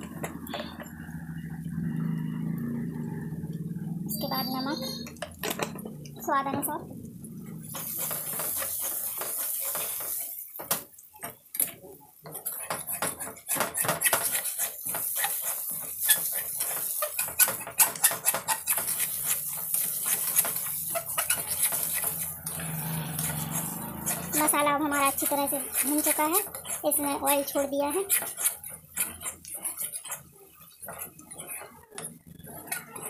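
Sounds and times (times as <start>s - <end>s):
oil sizzling: 5.1s - 33.0s
ladle scraping metal pan: 12.3s - 33.0s.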